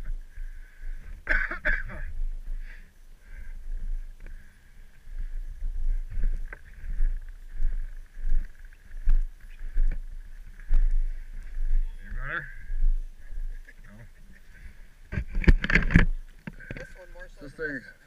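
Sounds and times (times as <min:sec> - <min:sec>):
thumps and knocks: 0:15.1 - 0:16.9.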